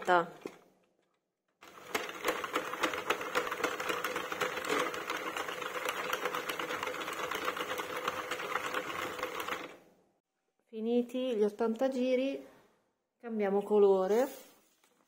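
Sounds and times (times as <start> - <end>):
knitting machine clattering: 1.6 - 9.8.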